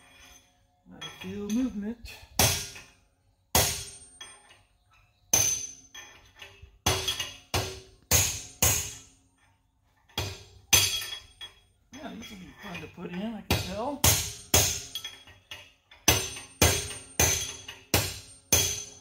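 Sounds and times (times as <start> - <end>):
hammer striking metal: 2.4 - 2.9, 3.5 - 4.4, 5.3 - 5.8, 6.8 - 9.1, 13.5 - 15.3, 16.0 - 19.0.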